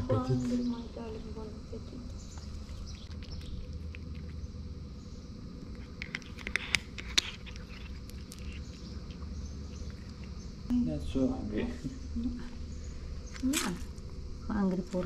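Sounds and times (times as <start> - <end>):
cat crunching dry kibble: 2.4 - 4.5, 5.4 - 10.4.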